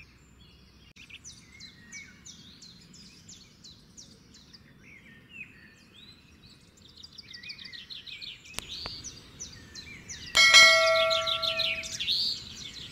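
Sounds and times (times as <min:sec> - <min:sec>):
birds chirping: 0:06.8 - 0:12.9
bright bell ding: 0:10.4 - 0:12.0.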